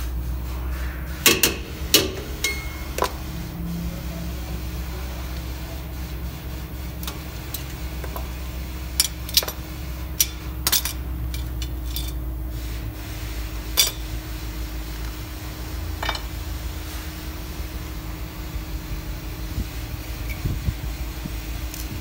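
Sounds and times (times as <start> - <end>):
steady low hum: 0.0 - 22.0
metal parts clinking: 10.2 - 12.2.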